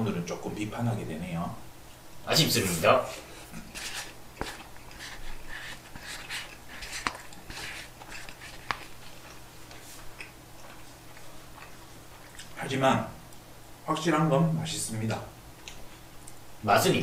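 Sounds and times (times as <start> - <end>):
chopsticks scraping a paper bowl: 3.1 - 9.3
chewing and mouth sounds: 3.6 - 12.6.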